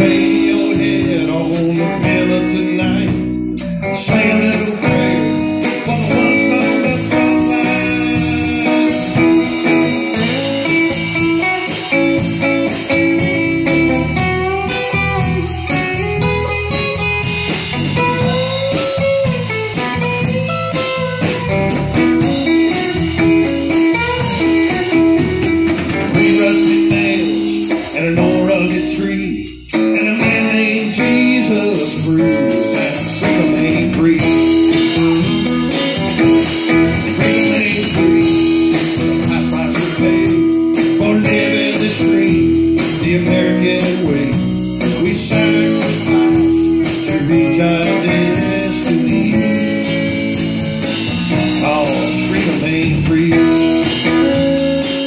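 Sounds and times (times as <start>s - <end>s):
live band playing: 0.0s - 55.0s.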